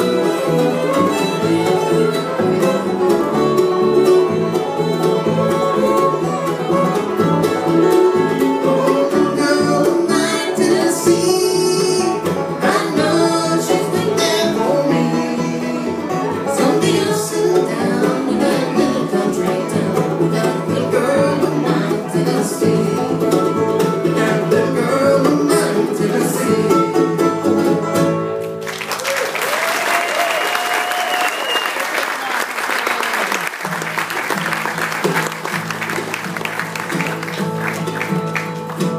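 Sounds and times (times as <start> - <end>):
fiddle bowing: 0.0 - 28.0, 34.0 - 38.9
bluegrass band playing: 0.0 - 29.7, 33.1 - 38.9
people singing: 8.3 - 27.3.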